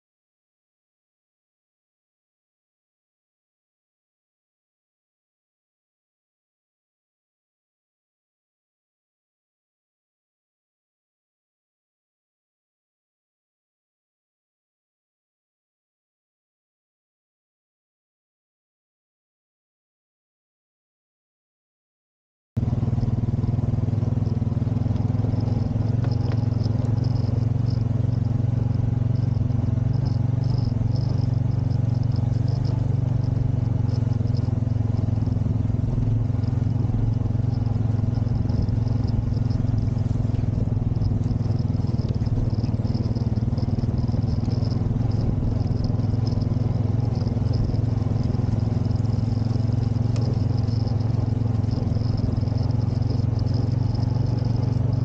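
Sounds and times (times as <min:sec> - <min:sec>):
quad bike engine droning: 0:22.6 - 0:55.0.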